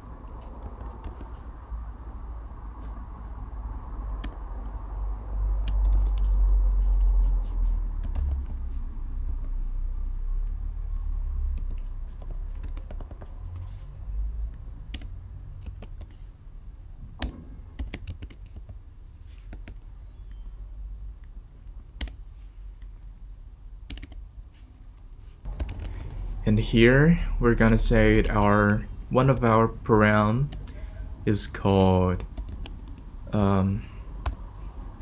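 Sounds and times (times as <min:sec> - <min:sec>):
keyboard keystroke clicks: 0:11.6 - 0:13.3, 0:14.9 - 0:16.2, 0:23.9 - 0:24.2.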